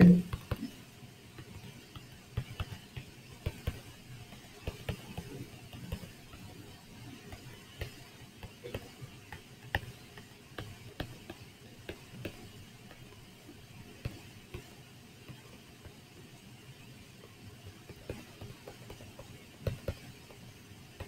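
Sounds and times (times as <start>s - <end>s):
stylus tapping on tablet screen: 0.0s - 13.3s, 17.8s - 21.0s
faint steady hiss: 0.0s - 21.0s.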